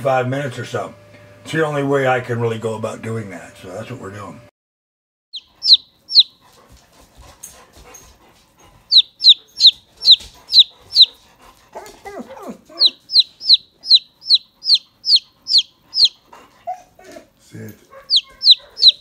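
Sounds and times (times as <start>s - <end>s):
chick lower-pitched call: 5.4s - 6.3s, 8.9s - 11.1s, 12.8s - 16.2s, 18.1s - 19.0s
chick peeping: 5.4s - 6.4s, 8.9s - 11.2s, 12.8s - 16.2s, 18.0s - 19.0s.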